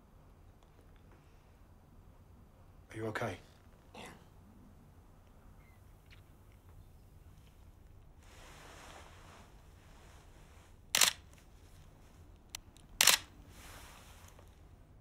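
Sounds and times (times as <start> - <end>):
camera shutter click: 11.0 - 11.2, 13.0 - 13.3.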